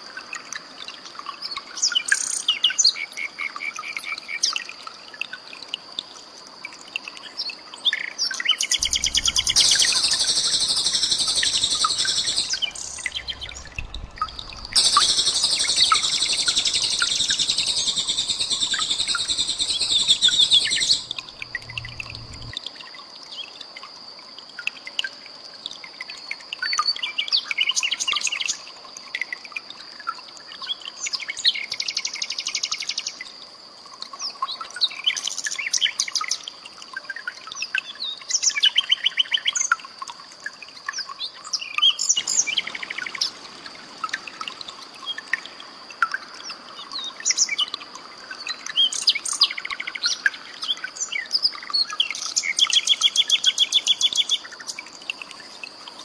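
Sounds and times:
nightingale singing: 8.4 - 22.5
steady high-pitched tone: 8.8 - 22.5.

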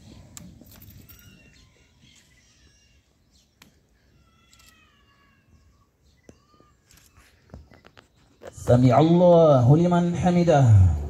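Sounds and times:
faint bird chirps: 0.0 - 9.2.

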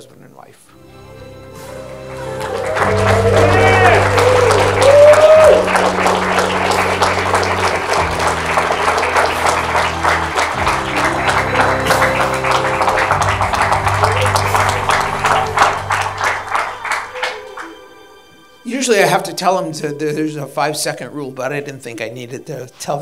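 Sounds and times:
music with held low notes: 0.7 - 23.0
people applauding: 1.6 - 19.2.

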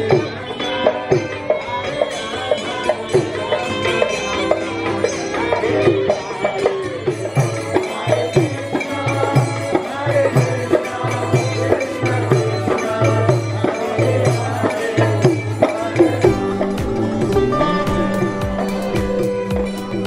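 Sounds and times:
group chanting: 5.5 - 20.0
barrel drum beating: 15.2 - 20.0.

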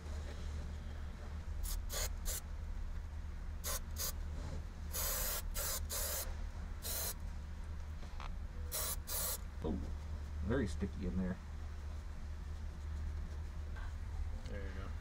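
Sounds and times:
steady low hum: 0.0 - 15.0
aerosol can spraying: 1.6 - 2.4, 3.6 - 4.1, 4.9 - 7.2, 8.7 - 9.4.

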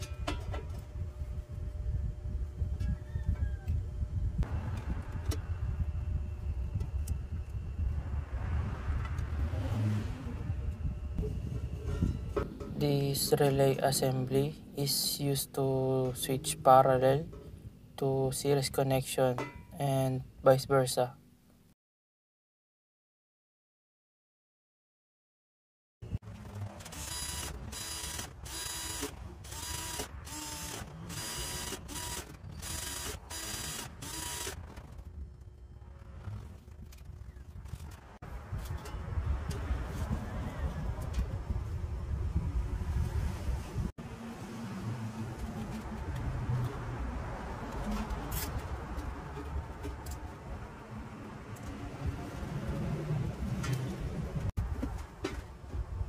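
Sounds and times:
power drill boring through board: 26.9 - 34.6.

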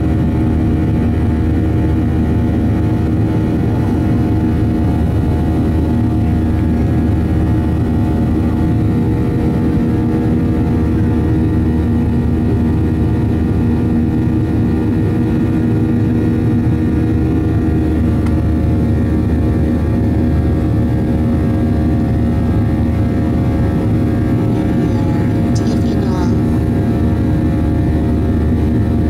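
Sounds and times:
jet engines rumbling: 0.1 - 29.0
steady humming tones: 21.9 - 29.0.

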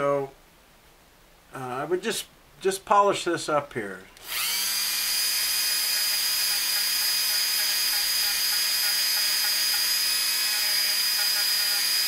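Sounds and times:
rotary tool high whine: 4.2 - 12.0.

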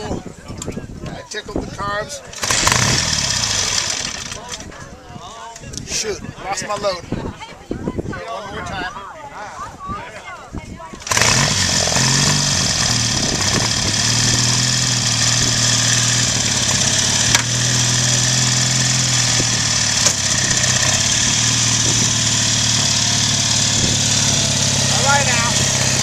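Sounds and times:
motorcycle engine idling: 11.0 - 26.0.

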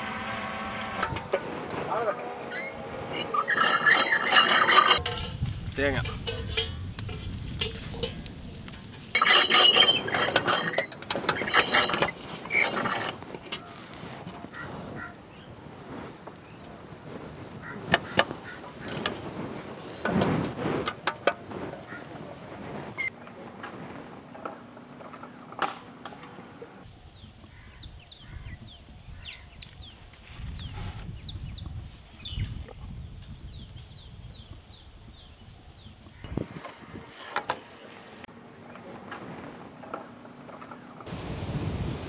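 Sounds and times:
coconut grating rasping scrapes: 0.0 - 5.1
birds chirping: 1.2 - 10.2, 26.6 - 38.2.

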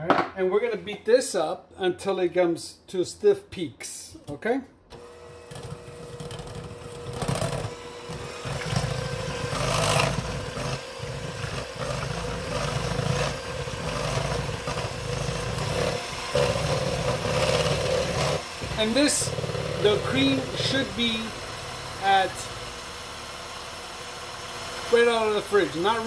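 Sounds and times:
electric hand mixer whipping cream: 5.0 - 26.0.

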